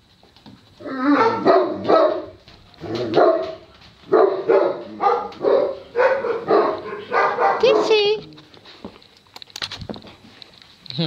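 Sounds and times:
dog barking: 1.1s - 2.4s, 3.0s - 8.2s.

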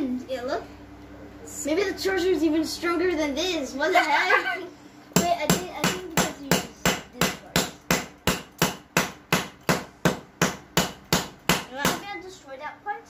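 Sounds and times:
hammer pounding on concrete: 5.2s - 12.1s.

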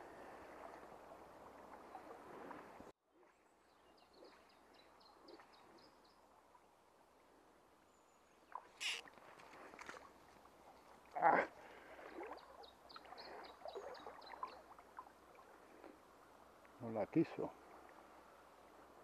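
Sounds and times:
flowing stream water: 0.0s - 3.0s, 8.4s - 19.0s
small bird chirping: 8.8s - 9.0s.

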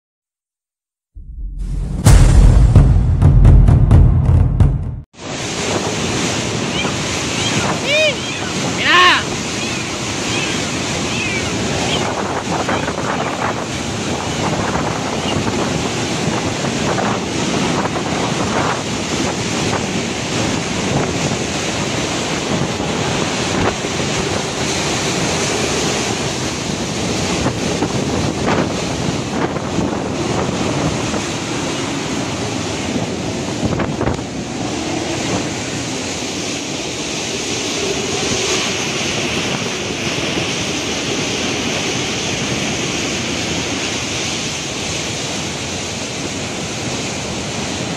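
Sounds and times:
wind buffeting on microphone: 5.2s - 47.9s
driving rain: 6.7s - 13.0s.

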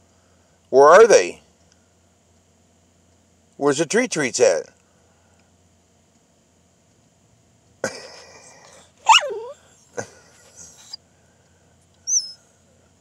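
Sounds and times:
dog huffing: 8.4s - 9.6s
dog whining yowl: 8.7s - 9.8s, 10.5s - 11.0s, 12.0s - 12.5s.

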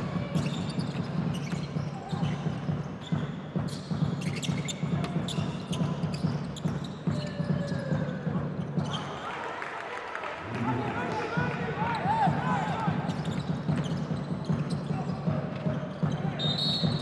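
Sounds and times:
low arena background noise: 0.0s - 17.0s.

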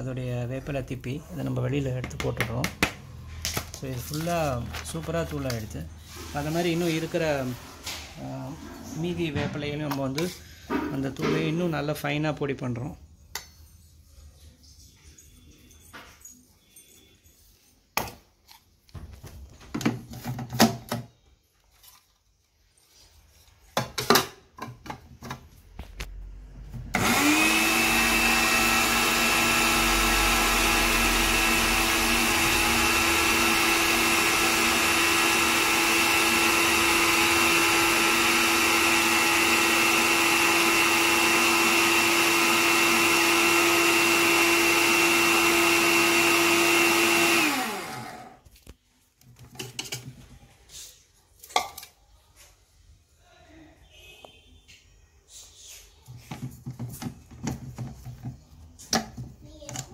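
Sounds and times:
mixer grinder motor whining: 26.9s - 48.5s.

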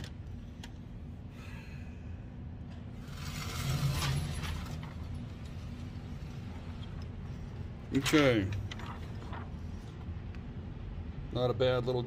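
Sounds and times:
rattling whir: 2.7s - 9.9s
motorized target carrier rumbling: 2.8s - 9.9s.

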